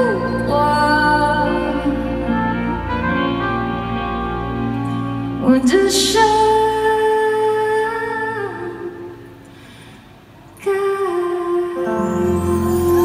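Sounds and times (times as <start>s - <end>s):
woman singing pop ballad: 0.0s - 2.8s, 5.4s - 9.2s, 10.6s - 13.0s
band accompaniment: 1.5s - 5.6s.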